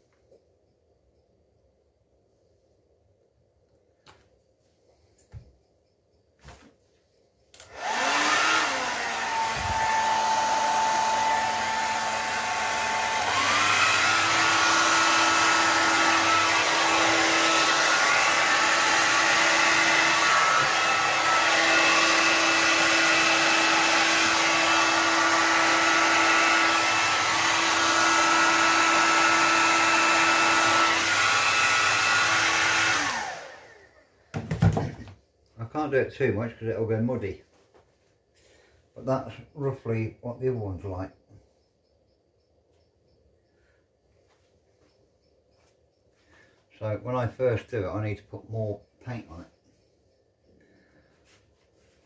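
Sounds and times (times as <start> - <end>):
hair dryer blowing: 7.6 - 34.1.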